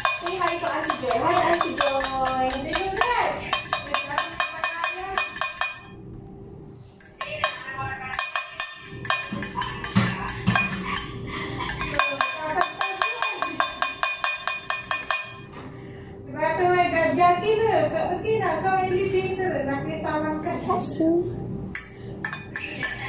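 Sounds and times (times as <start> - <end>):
fork clinking against glass dish: 7.0 - 11.1, 11.7 - 15.5.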